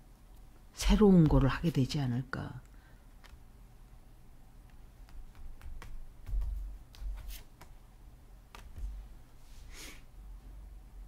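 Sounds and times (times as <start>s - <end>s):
cards clicking and tapping: 3.2s - 3.4s, 4.6s - 7.8s, 8.5s - 9.0s.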